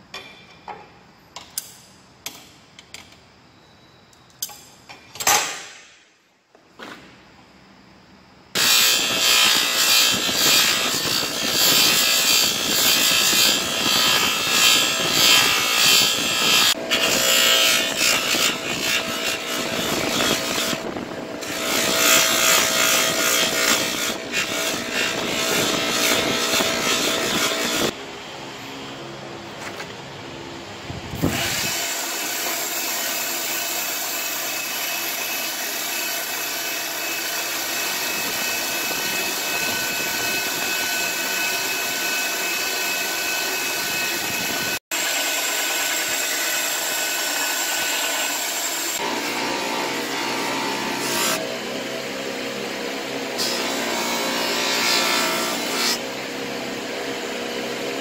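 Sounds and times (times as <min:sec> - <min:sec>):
sanding wheel grinding metal: 0:08.6 - 0:27.9, 0:31.3 - 0:51.4
wooden handle sanding on wheel: 0:08.6 - 0:27.9.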